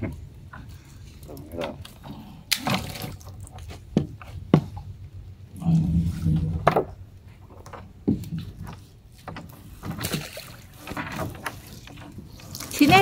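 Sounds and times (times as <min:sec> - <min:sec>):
water splashing: 0:00.8 - 0:03.8, 0:09.1 - 0:13.0
wet net rustling: 0:09.1 - 0:13.0.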